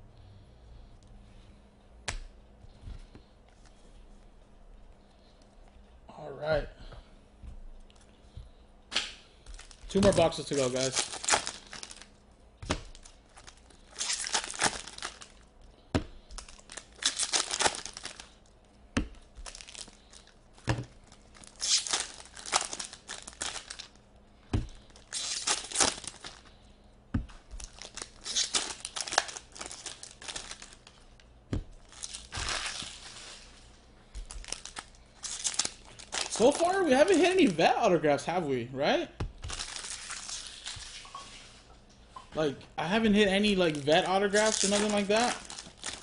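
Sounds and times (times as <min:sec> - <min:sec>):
foil wrappers crinkling and tearing: 0:09.4 - 0:15.6, 0:16.2 - 0:18.5, 0:19.3 - 0:24.0, 0:24.6 - 0:26.6, 0:27.4 - 0:37.6, 0:39.4 - 0:41.0, 0:43.1 - 0:46.0.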